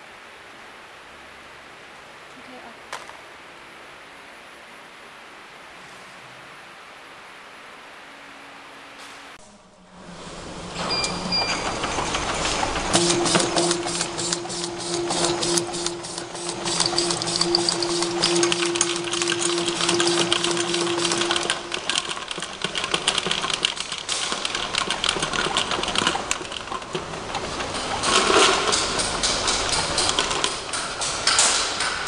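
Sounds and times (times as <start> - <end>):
rapid mechanical clicking and rattling: 10.2 - 32.0
steady motor hum: 11.5 - 32.0.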